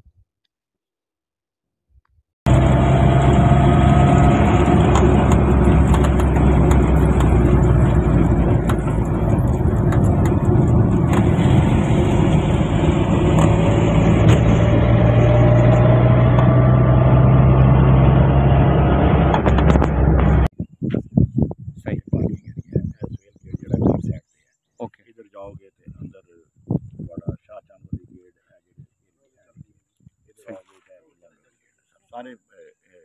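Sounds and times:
car engine hum and road noise: 0:02.5 - 0:20.5.

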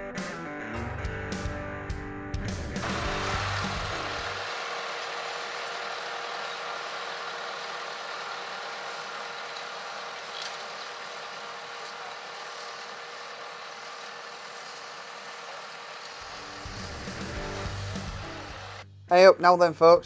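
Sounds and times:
tractor engine running: 0:02.8 - 0:18.8
cultivator tines rattling: 0:03.3 - 0:16.3.

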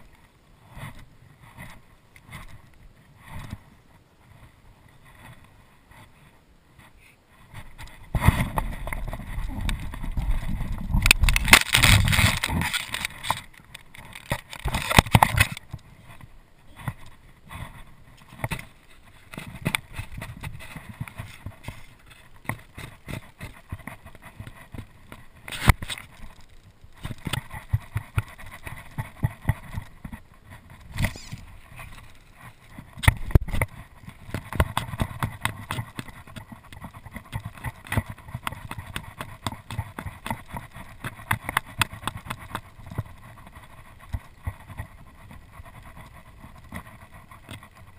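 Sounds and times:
sharp clicks and knocks: 0:07.5 - 0:43.2
jacket sleeve rubbing on camera: 0:30.6 - 0:32.9.

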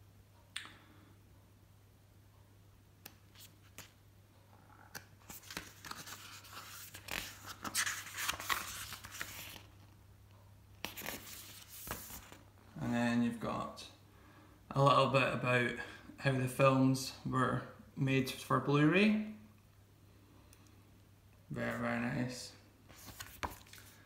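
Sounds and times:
paper pages rustling: 0:03.1 - 0:04.0, 0:04.9 - 0:10.0, 0:10.8 - 0:12.5, 0:22.9 - 0:24.0.

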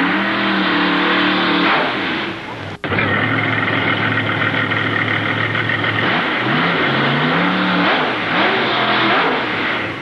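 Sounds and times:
engine idling and revving: 0:00.0 - 0:10.0.

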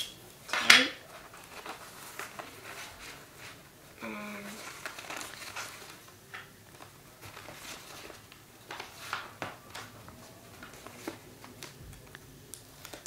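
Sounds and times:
paper rustling: 0:00.5 - 0:13.0
tape clicks and crackles: 0:04.6 - 0:13.0.

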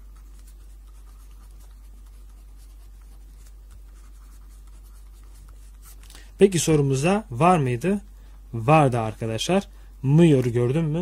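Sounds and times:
pen scratching on paper: 0:00.0 - 0:06.0
steady low hum: 0:00.0 - 0:11.0.

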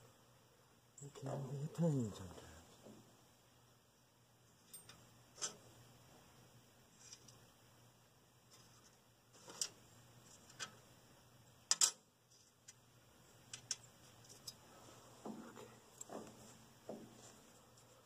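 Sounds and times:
metal washers and nuts clinking: 0:04.6 - 0:05.6.

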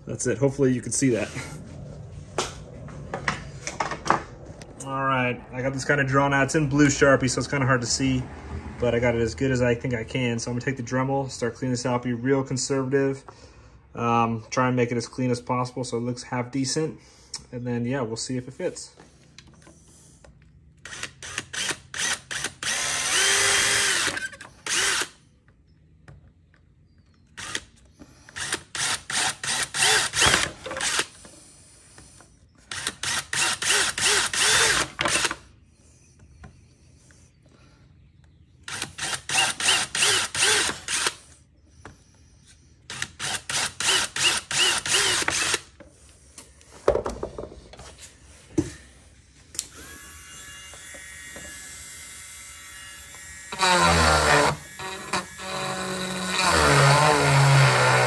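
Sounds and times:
drill in short bursts: 0:20.9 - 0:25.2, 0:32.7 - 0:35.3, 0:38.7 - 0:41.4, 0:42.9 - 0:45.7.

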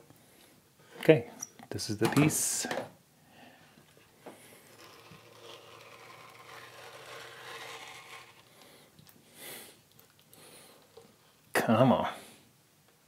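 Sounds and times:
knife scraping a leaf: 0:04.5 - 0:08.9.

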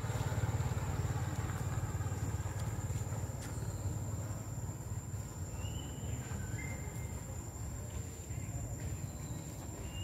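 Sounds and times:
faint chirps: 0:05.2 - 0:10.0.

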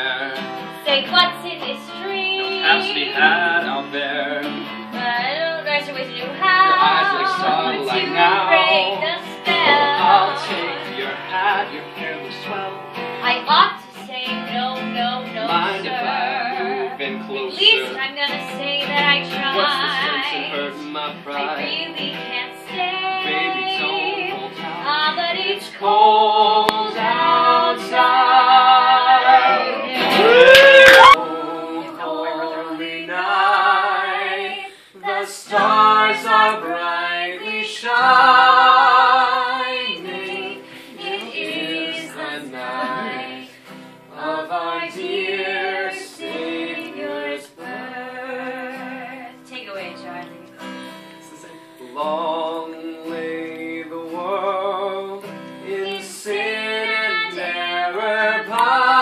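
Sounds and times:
man singing: 0:00.0 - 0:00.8, 0:02.4 - 0:04.8, 0:06.4 - 0:12.9, 0:15.3 - 0:18.1, 0:19.4 - 0:21.8, 0:25.7 - 0:28.0, 0:35.0 - 0:43.5, 0:51.3 - 0:59.0
strummed acoustic guitar: 0:00.0 - 0:30.4, 0:32.8 - 0:59.0
woman singing with vibrato: 0:00.8 - 0:11.8, 0:12.5 - 0:17.0, 0:17.6 - 0:52.1, 0:55.7 - 0:59.0.

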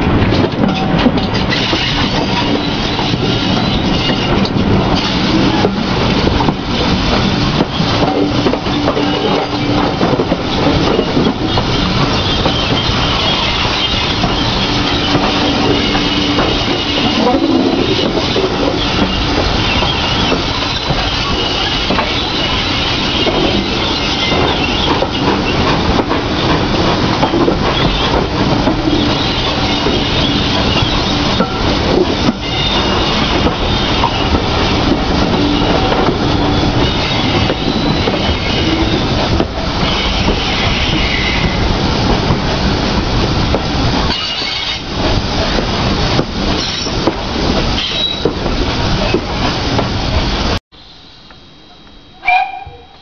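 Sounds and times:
rail-joint clicks: 0:00.0 - 0:50.6
train wheels rumbling on rail: 0:00.0 - 0:53.0
wheel squeal: 0:44.1 - 0:44.8, 0:47.7 - 0:48.3.

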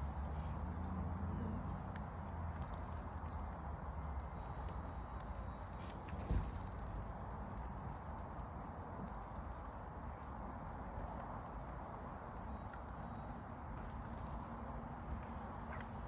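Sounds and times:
low outdoor background noise: 0:00.0 - 0:16.0
faint high ticks: 0:06.6 - 0:10.4, 0:12.5 - 0:14.6.

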